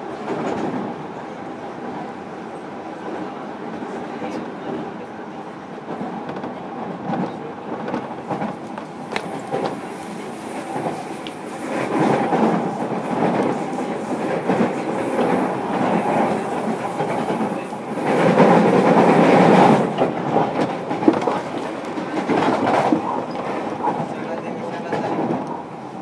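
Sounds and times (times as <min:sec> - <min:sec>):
wheel and rail noise: 0:05.9 - 0:26.0.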